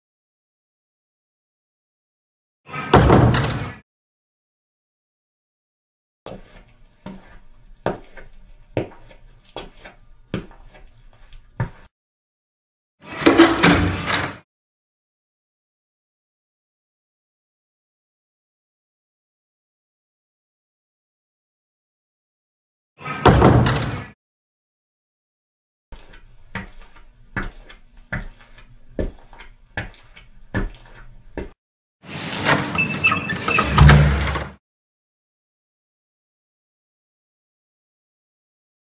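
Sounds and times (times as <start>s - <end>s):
footsteps on hard floor: 6.3s - 11.9s, 26.0s - 31.6s.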